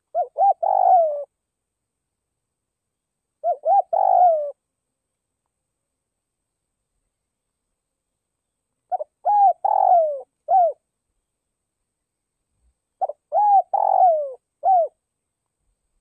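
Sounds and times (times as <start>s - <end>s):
dove cooing: 0.0s - 1.3s, 3.4s - 4.6s, 8.9s - 10.8s, 13.0s - 15.0s.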